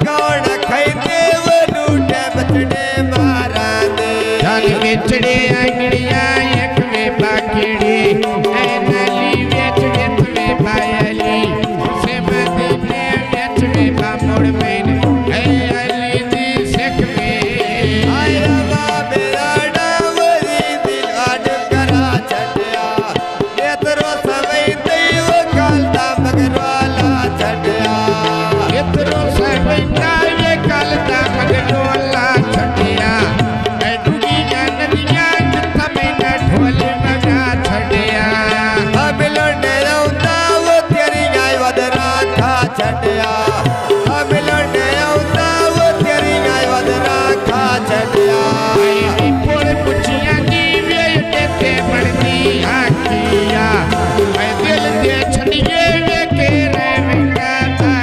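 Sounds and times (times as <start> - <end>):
man singing: 0.0 - 58.0
tabla playing: 0.0 - 58.0.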